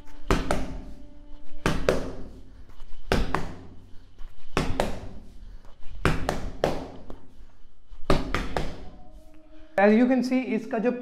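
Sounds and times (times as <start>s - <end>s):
boxing gloves punching a wall: 0.2s - 1.0s, 1.6s - 2.4s, 3.1s - 3.8s, 4.5s - 5.3s, 6.0s - 7.2s, 8.0s - 9.0s.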